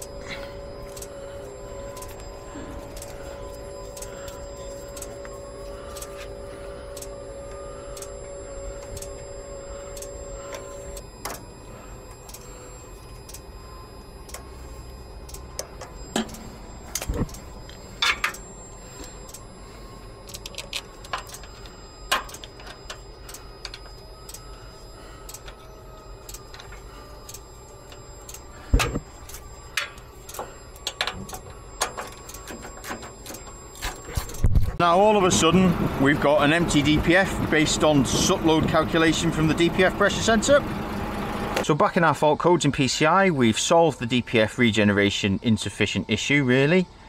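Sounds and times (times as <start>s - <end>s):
steady low hum: 0.0s - 47.0s.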